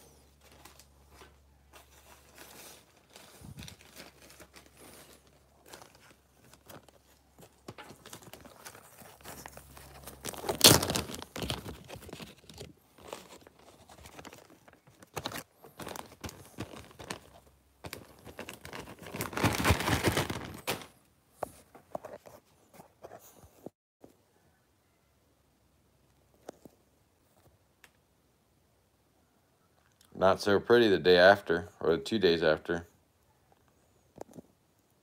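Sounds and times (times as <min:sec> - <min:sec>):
plastic bags crinkling: 0:00.1 - 0:21.0.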